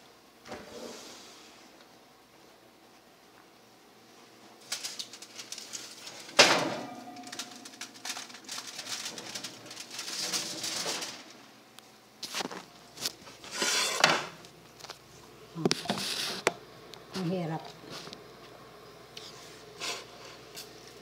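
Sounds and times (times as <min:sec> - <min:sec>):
oven door shutting with clank: 0:06.3 - 0:07.7.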